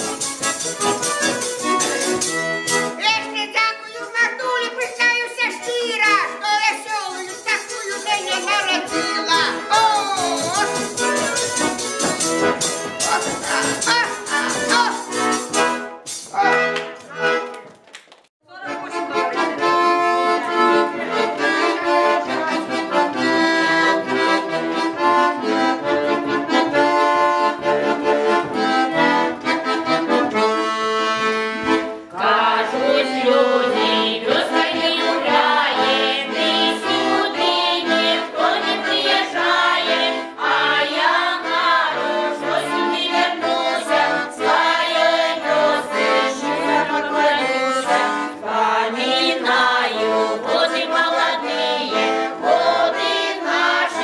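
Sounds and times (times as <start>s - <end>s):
accordion playing folk tune: 0.0s - 17.7s, 18.5s - 54.0s
women's choir singing: 32.1s - 54.0s.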